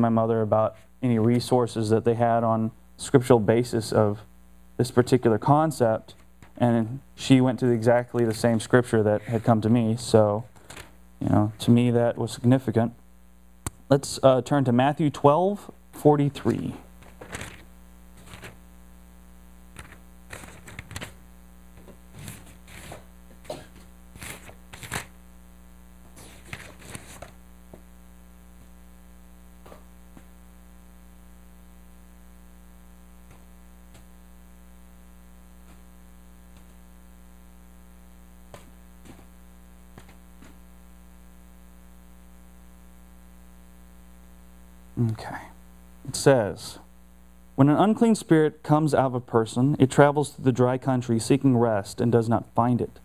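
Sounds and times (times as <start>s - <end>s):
electrical mains hum: 0.0s - 53.0s
paper pages rustling: 10.5s - 11.0s, 16.5s - 18.6s, 19.8s - 21.2s, 21.8s - 25.1s, 26.1s - 27.4s.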